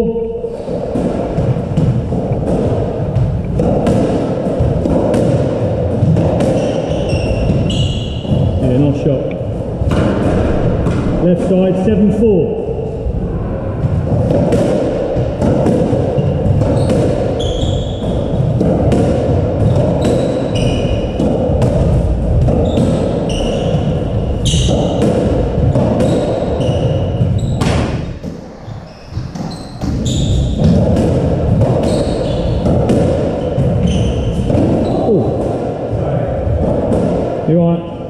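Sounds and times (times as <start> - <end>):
squash ball hitting racket and walls: 0.0 - 38.0
shoes squeaking on wooden floor: 6.1 - 9.5, 16.1 - 18.6, 19.6 - 25.0, 25.7 - 35.4.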